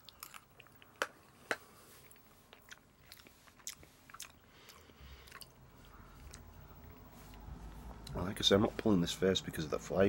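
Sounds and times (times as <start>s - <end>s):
wet mouth clicks chewing: 0.0s - 7.4s.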